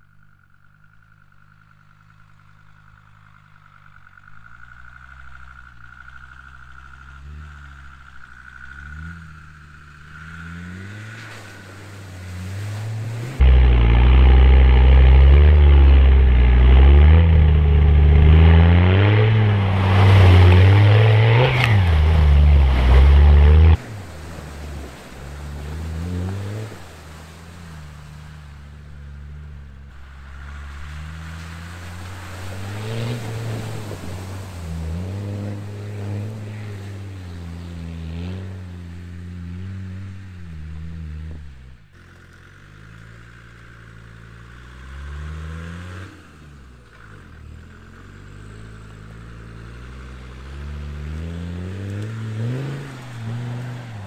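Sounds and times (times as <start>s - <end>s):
diesel engine revving: 0.0s - 54.0s
water splashing: 4.9s - 39.8s, 42.6s - 54.0s.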